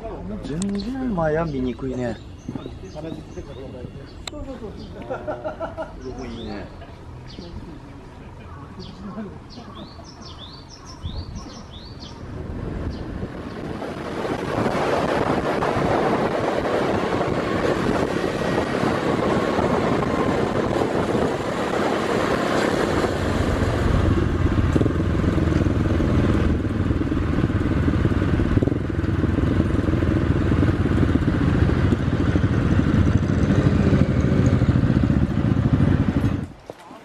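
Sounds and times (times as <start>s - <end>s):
motorcycle engine: 1.2s - 36.6s
wind rushing over microphone: 9.8s - 36.6s.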